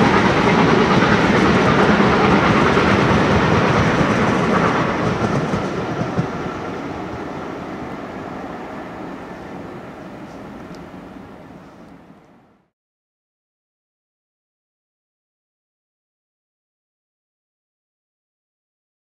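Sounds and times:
train wheels on rails: 0.0s - 12.6s.

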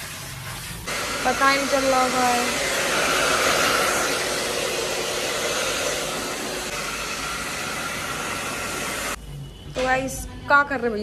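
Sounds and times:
hair dryer blowing: 0.9s - 9.2s.

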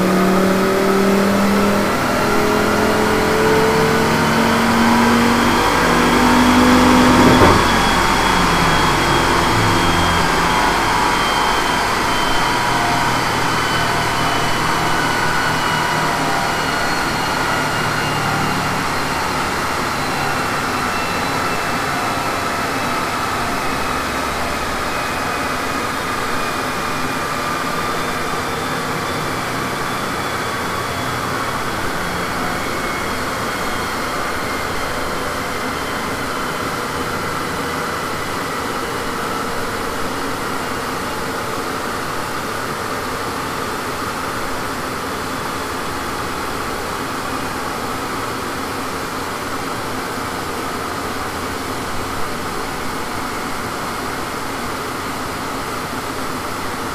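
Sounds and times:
car wheels spinning down on rollers: 0.0s - 20.8s.

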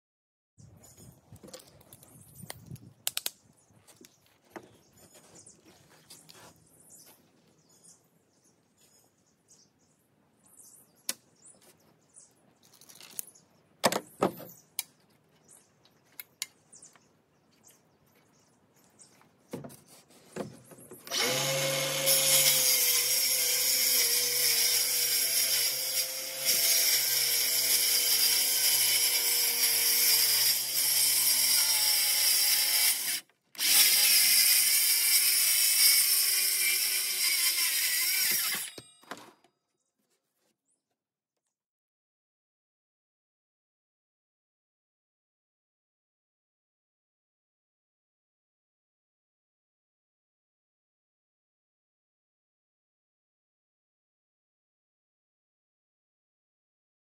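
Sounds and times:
circular saw cutting with a whine: 21.1s - 38.8s.

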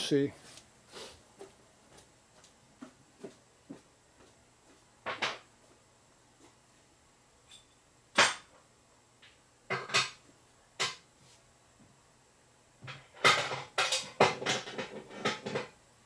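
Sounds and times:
knocks and clatters of tools: 5.0s - 5.5s, 9.2s - 10.2s, 10.8s - 11.0s, 12.8s - 15.8s.

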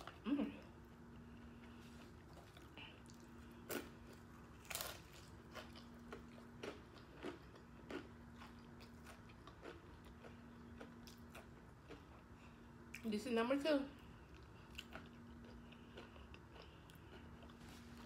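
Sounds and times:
crunching taco shell: 2.0s - 12.1s.

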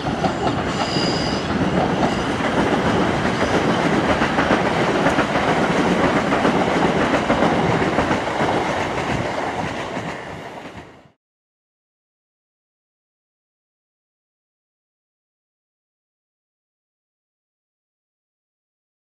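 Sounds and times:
train wheels on rails: 0.0s - 11.2s.

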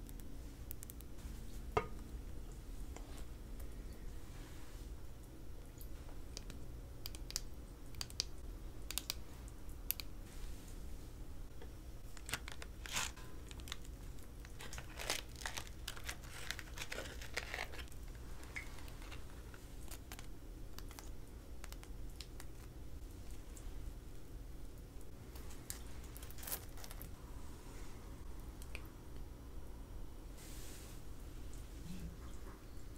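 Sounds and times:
wrapping crinkling and tearing: 12.0s - 22.7s, 25.4s - 27.1s.

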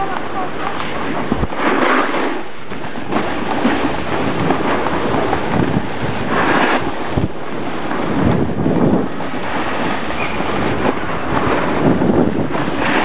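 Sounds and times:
snowboard scraping over snow: 0.0s - 13.0s
wind on microphone: 0.0s - 13.0s.

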